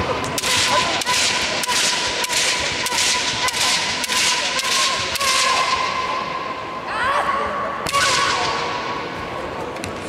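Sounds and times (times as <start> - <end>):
bamboo swords cracking: 0.4 - 5.9.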